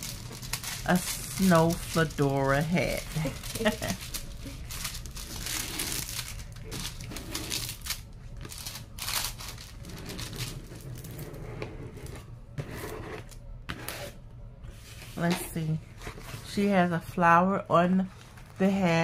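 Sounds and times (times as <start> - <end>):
plastic film crinkling: 0.0 - 11.3.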